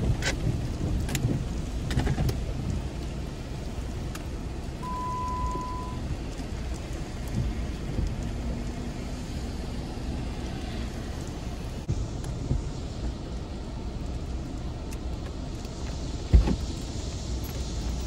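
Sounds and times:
light rain on a car: 0.0 - 18.0
electronic beep: 4.8 - 6.0.

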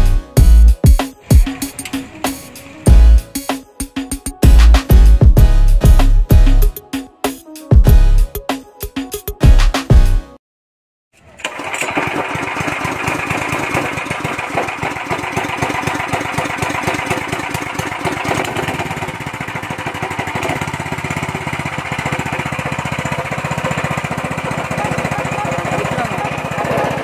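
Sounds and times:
small engine running: 0.0 - 3.4, 11.2 - 27.0.

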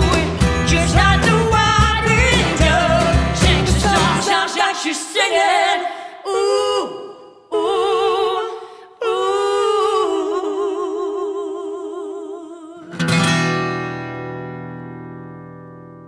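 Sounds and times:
acoustic band playing: 0.0 - 4.3, 13.0 - 16.0
woman singing with vibrato: 0.0 - 13.2.

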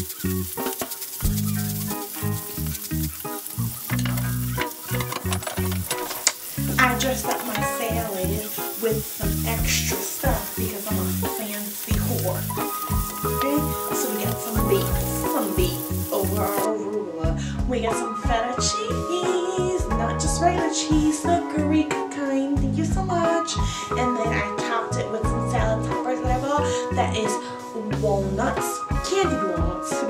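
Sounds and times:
green beans sizzling in a pan: 0.0 - 16.7.

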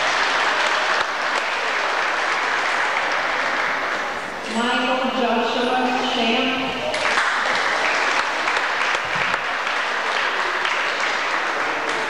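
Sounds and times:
audience applauding: 0.0 - 4.3, 6.9 - 12.0.

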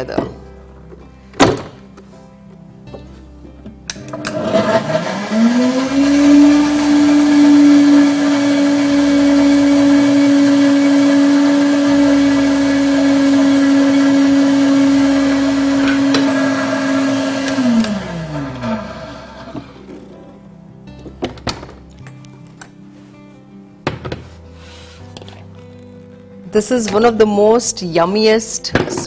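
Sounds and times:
blender motor humming: 4.0 - 20.0.

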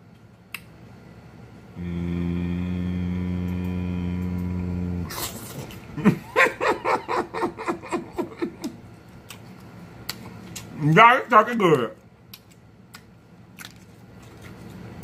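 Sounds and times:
deep voice-like hum: 1.7 - 5.6.

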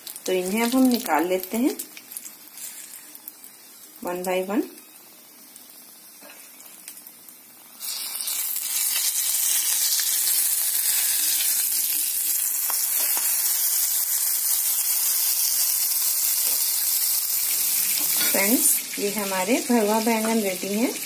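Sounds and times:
oil sizzling in frying pan: 0.0 - 21.0.

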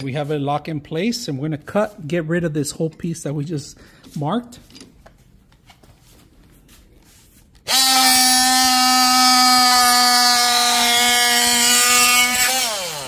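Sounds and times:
oscillating multi-tool cutting wood: 7.6 - 13.0.

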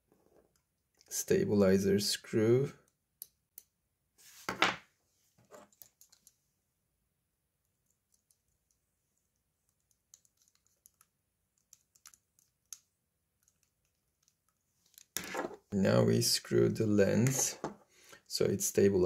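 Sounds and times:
small clicks and taps: 5.7 - 6.4, 7.8 - 15.2.

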